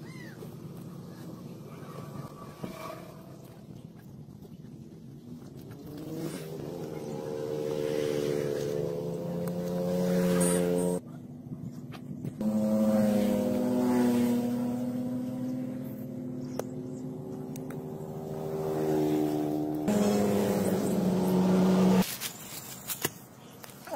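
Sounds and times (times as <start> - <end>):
motor engine humming: 12.2 - 22.0.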